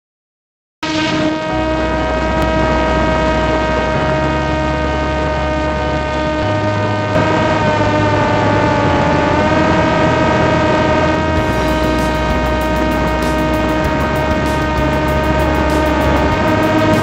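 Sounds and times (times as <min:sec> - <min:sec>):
drone propeller whine: 0:00.8 - 0:17.0
steady rushing noise: 0:00.8 - 0:17.0.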